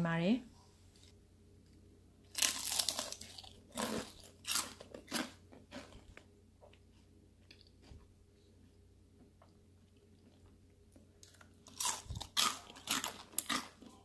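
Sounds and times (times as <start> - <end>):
crunching fried food: 2.3 - 6.3, 11.2 - 14.0
soft chewing: 2.4 - 14.0.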